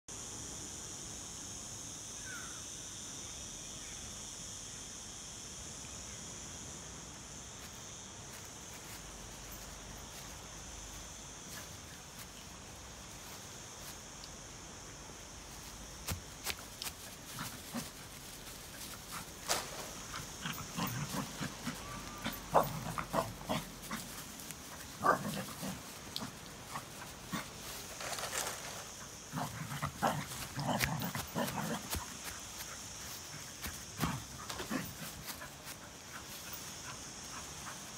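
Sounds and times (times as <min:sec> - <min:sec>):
steady high hiss: 0:00.1 - 0:37.9
knocks and rustling: 0:26.3 - 0:29.0.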